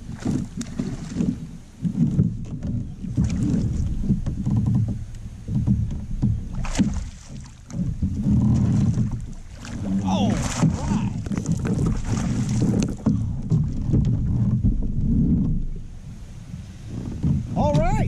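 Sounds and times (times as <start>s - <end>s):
water splashing against hull: 0.0s - 18.0s
wind rumbling on microphone: 0.0s - 18.0s
small knocks: 0.2s - 9.8s.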